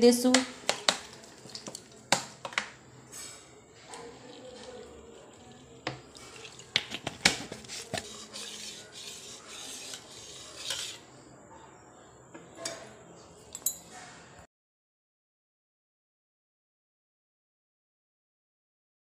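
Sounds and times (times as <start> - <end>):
spoon stirring wet seeds: 0.3 - 11.1
water poured into a steel bowl: 0.6 - 2.2, 3.9 - 7.1
spoon clinking against steel: 13.5 - 13.9.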